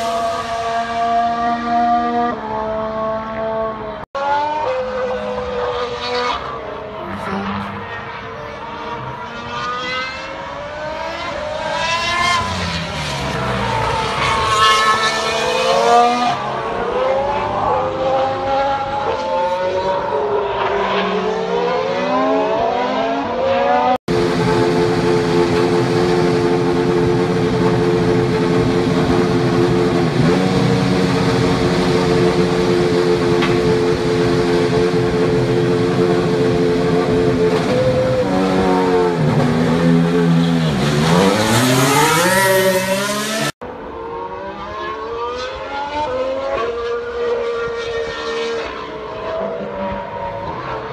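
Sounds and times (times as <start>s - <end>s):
racing car engine: 0.0s - 50.9s.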